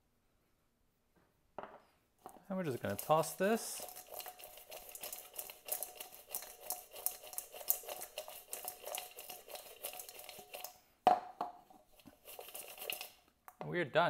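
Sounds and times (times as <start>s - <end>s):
fries tossed in metal bowl: 2.5s - 10.7s, 12.0s - 13.2s.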